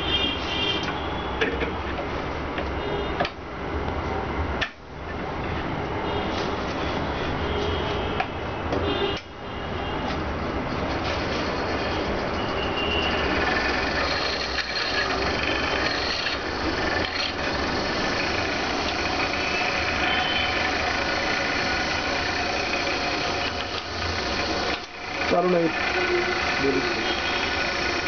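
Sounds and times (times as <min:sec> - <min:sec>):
small machine motor running: 0:10.9 - 0:28.0.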